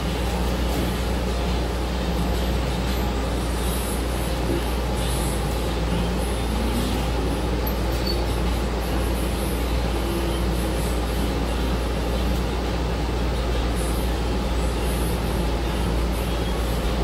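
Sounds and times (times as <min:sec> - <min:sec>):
bus engine rumble: 0:00.0 - 0:17.0
road noise: 0:00.0 - 0:17.0.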